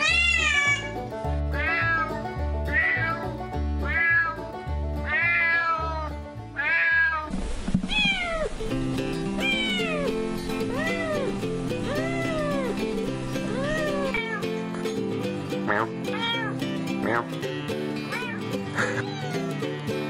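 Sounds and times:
kitten meowing: 0:00.0 - 0:00.9, 0:01.6 - 0:02.1, 0:02.7 - 0:03.2, 0:03.8 - 0:04.4, 0:05.1 - 0:07.3, 0:09.4 - 0:10.1, 0:11.9 - 0:12.7, 0:13.5 - 0:14.4, 0:16.1 - 0:16.6, 0:18.1 - 0:19.6
cat meowing: 0:00.0 - 0:01.0, 0:01.6 - 0:03.2, 0:03.8 - 0:04.4, 0:05.1 - 0:07.3, 0:07.9 - 0:08.5, 0:09.4 - 0:10.1, 0:10.7 - 0:11.3, 0:11.9 - 0:12.7, 0:13.5 - 0:14.4, 0:16.1 - 0:16.6, 0:18.1 - 0:19.7
background music: 0:00.0 - 0:20.0.

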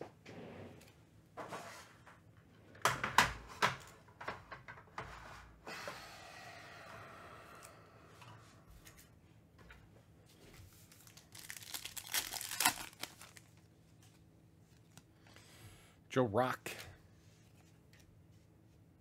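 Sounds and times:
packaging rustling: 0:10.8 - 0:15.0.

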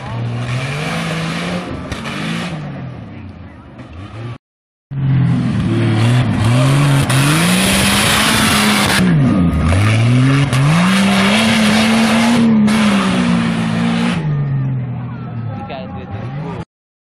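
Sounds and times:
buggy engine revving hard: 0:00.0 - 0:03.0, 0:05.0 - 0:15.0.

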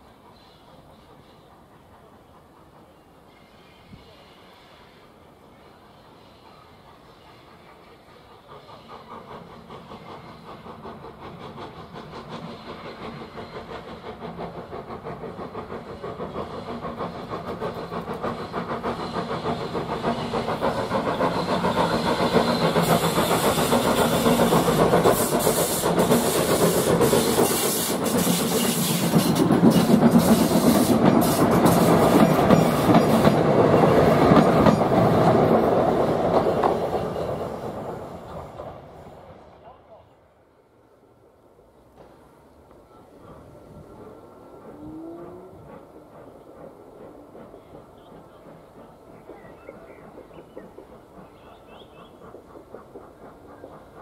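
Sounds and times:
train passing at speed: 0:00.0 - 0:54.0.

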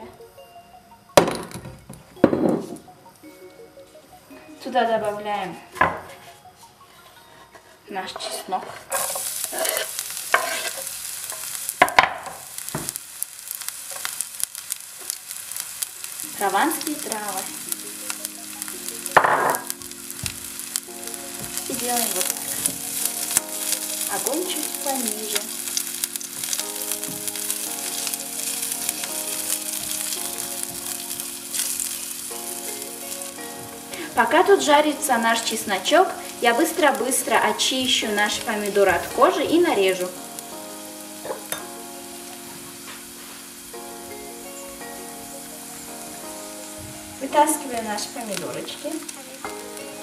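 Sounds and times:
soft background music: 0:00.0 - 0:50.0
spatula stirring: 0:08.2 - 0:11.6, 0:13.9 - 0:34.7
garlic sizzling in hot oil: 0:08.9 - 0:50.0.

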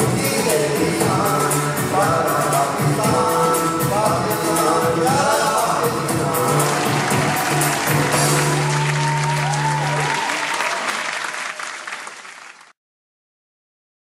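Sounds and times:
song held low note: 0:00.2 - 0:10.0
audience clapping and cheering: 0:06.2 - 0:12.8.

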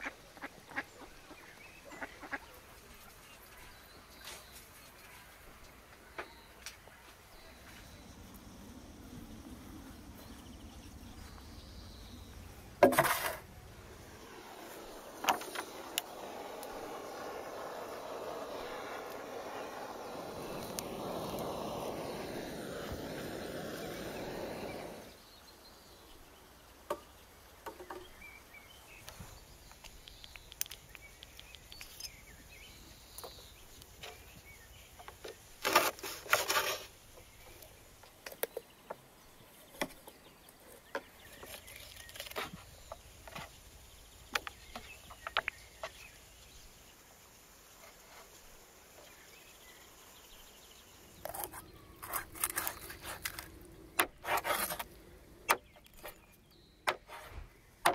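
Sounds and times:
gas torch hissing: 0:13.2 - 0:25.2.

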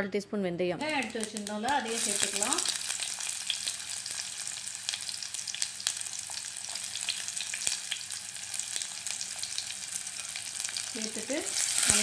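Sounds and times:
sharp crackles: 0:00.8 - 0:03.7
onions sizzling in hot oil: 0:00.8 - 0:12.0.

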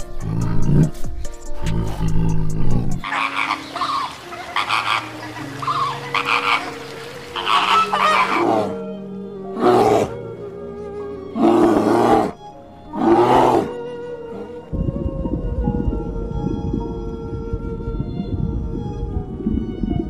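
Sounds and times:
wild animal roaring: 0:00.0 - 0:03.5, 0:07.4 - 0:08.9, 0:09.5 - 0:10.2, 0:11.3 - 0:14.6
background music with drone: 0:00.0 - 0:20.0.

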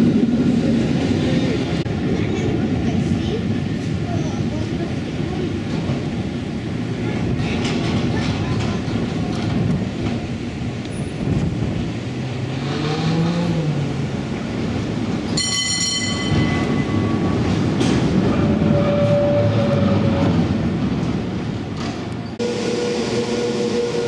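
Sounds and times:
cable car rumbling on rails: 0:00.0 - 0:24.0
cable car bell strike: 0:15.4 - 0:17.3.

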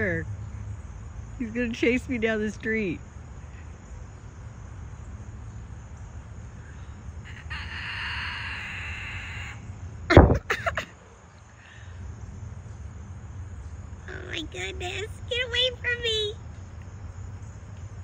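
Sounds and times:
insect buzzing: 0:06.5 - 0:10.7.

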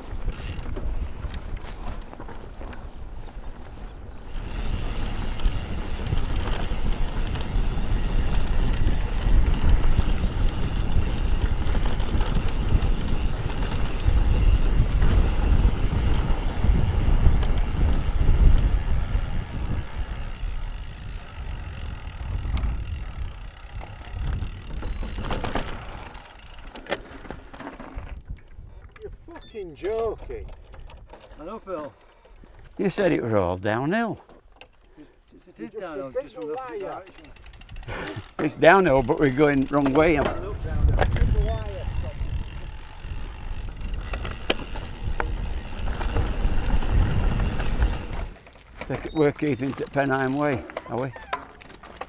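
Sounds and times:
bike chain and frame rattling: 0:00.0 - 0:02.7, 0:04.2 - 0:28.8, 0:29.4 - 0:32.5, 0:34.2 - 0:52.0
wind buffeting microphone: 0:00.0 - 0:25.9, 0:39.0 - 0:48.4
bike tyres rumbling over ground: 0:00.0 - 0:28.4, 0:37.2 - 0:52.0.

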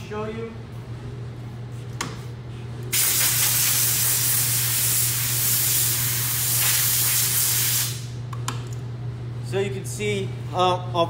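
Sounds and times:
air blow gun hissing: 0:02.9 - 0:08.1.

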